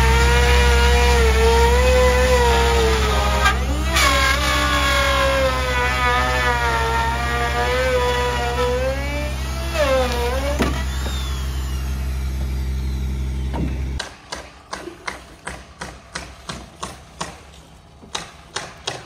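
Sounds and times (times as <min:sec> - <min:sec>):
electric saw motor whine: 0:00.0 - 0:14.0
steady low hum: 0:09.0 - 0:14.0.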